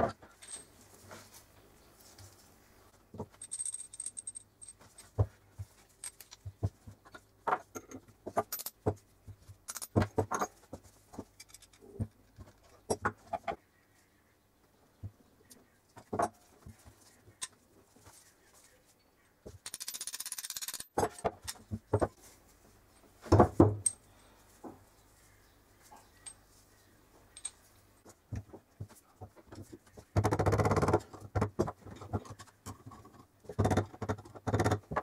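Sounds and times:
metal parts clicking and clattering: 0.2 - 0.8, 3.2 - 5.2, 5.8 - 6.5, 7.1 - 8.8, 9.6 - 12.7, 19.6 - 21.7, 27.3 - 27.7.

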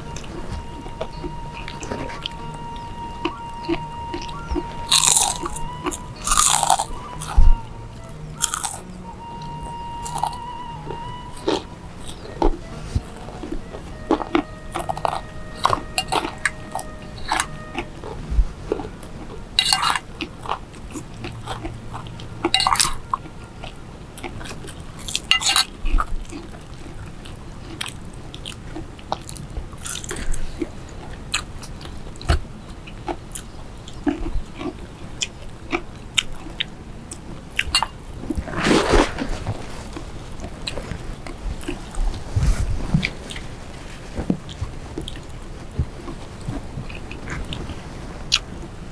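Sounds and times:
chewing and biting: 0.0 - 7.7, 8.4 - 42.2
crunches of crisp fried food: 1.2 - 7.6, 8.4 - 10.4, 18.7 - 30.6.

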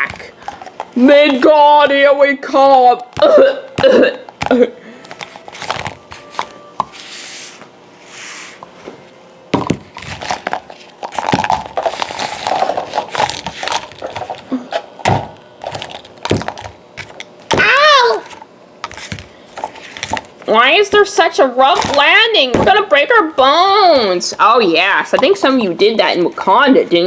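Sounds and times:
plastic toy figures clattering: 10.0 - 14.4, 15.6 - 17.2.

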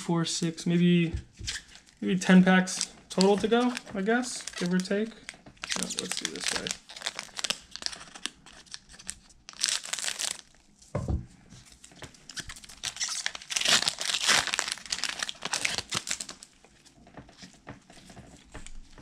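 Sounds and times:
foil wrapper tearing and crinkling: 2.7 - 10.6, 12.3 - 16.5
soft thump: 11.0 - 11.3.

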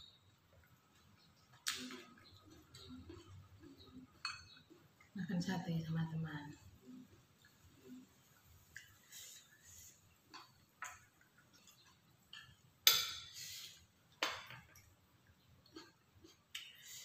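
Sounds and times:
spoon clinking on a plate: 4.1 - 4.8.

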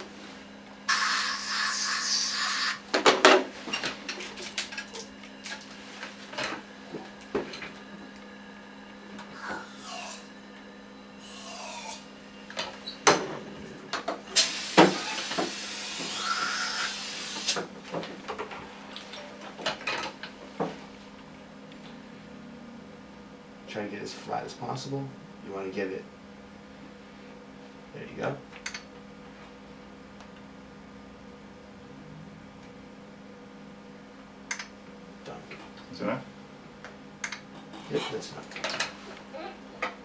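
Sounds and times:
low equipment hum: 0.0 - 40.0
compressed air hissing: 0.9 - 2.8, 11.2 - 12.1, 14.4 - 17.6.

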